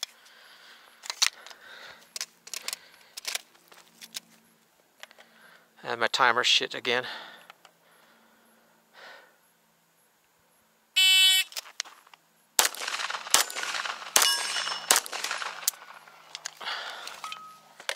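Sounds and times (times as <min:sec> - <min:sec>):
rapid pistol shots: 0:12.6 - 0:16.3
steel targets clanging: 0:12.9 - 0:16.0, 0:17.2 - 0:17.7.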